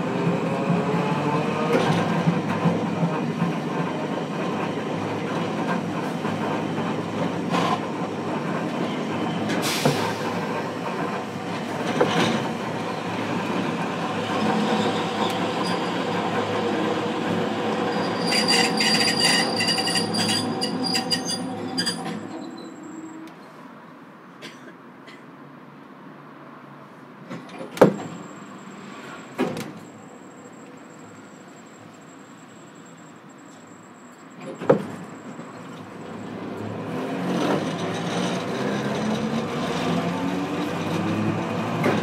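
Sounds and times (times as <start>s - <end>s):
wheel squeal and crackling: 17.8s - 23.3s.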